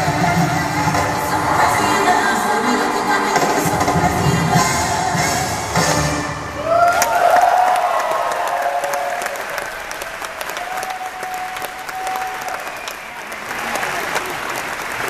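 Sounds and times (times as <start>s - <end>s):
crowd applauding: 0.0s - 4.6s, 6.6s - 15.0s
crowd cheering: 0.0s - 15.0s.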